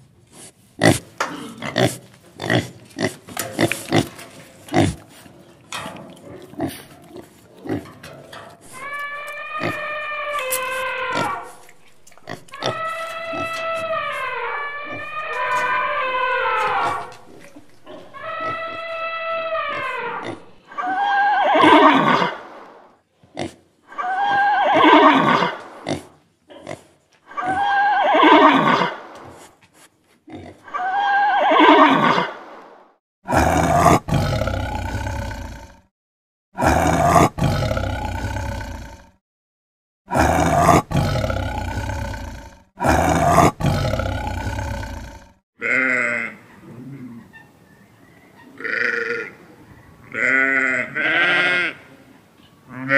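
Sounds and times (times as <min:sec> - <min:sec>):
elephant trumpeting: 0:08.6 - 0:22.4
leopard growling: 0:40.1 - 0:45.4.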